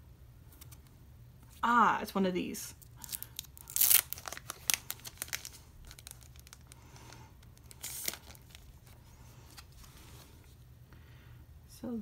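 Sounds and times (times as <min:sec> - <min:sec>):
plastic sleeve crinkling: 0:02.8 - 0:10.5.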